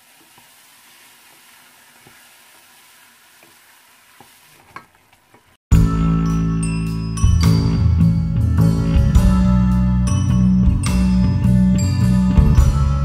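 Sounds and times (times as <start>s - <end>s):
food sizzling in oil: 0.0s - 4.6s.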